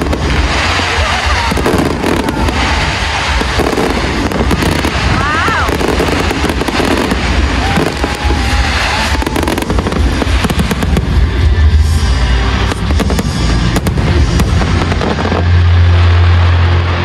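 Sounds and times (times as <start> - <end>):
fireworks bursting and crackling: 0.0 - 17.0
fireworks low booms: 0.0 - 17.0.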